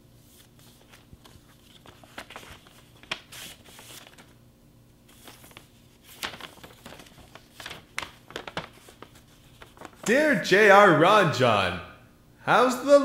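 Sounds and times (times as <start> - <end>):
paper tearing and crinkling: 0.8 - 4.3, 5.1 - 10.1.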